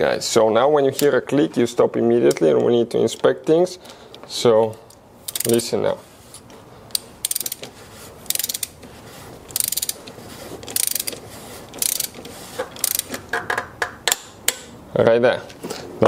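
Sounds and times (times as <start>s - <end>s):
torque wrench ratcheting clicks: 5.3s - 5.6s, 6.9s - 7.7s, 8.3s - 8.8s, 9.5s - 10.1s, 10.7s - 11.2s, 11.8s - 12.2s, 12.8s - 13.6s.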